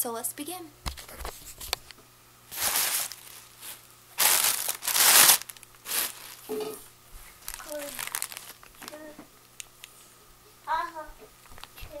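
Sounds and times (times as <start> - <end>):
tissue paper crinkling: 2.5 - 6.6, 7.2 - 9.0.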